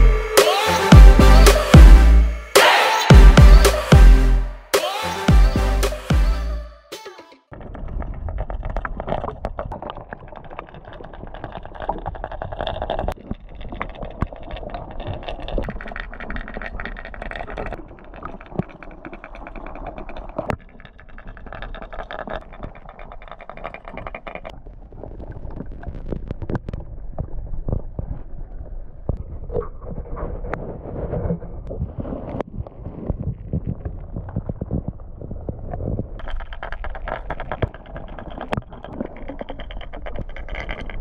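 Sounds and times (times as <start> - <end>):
muffled underwater rumble: 24.5 - 41.0.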